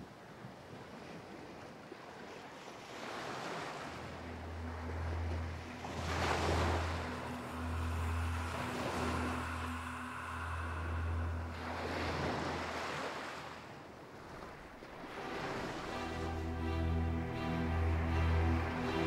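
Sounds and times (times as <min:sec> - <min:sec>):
wind gusting: 0:03.6 - 0:18.8.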